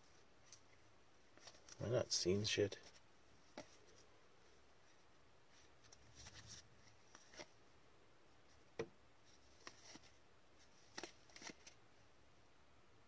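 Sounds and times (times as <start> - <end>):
trading cards clicking and sliding: 10.8 - 11.8.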